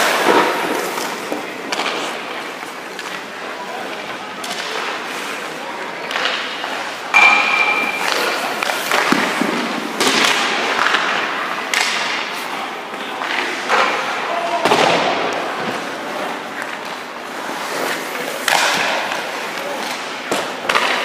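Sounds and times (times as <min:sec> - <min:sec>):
skate blades scraping ice: 0:00.0 - 0:03.3, 0:08.0 - 0:11.5, 0:15.7 - 0:21.0.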